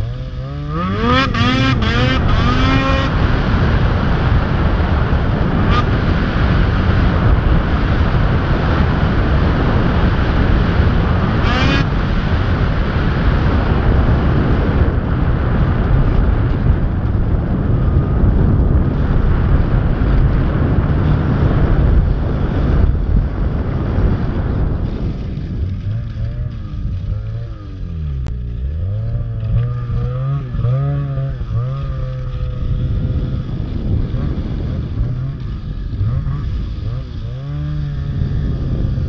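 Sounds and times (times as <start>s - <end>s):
snowmobile engine running: 0.0s - 39.0s
wind noise on microphone: 0.0s - 39.0s.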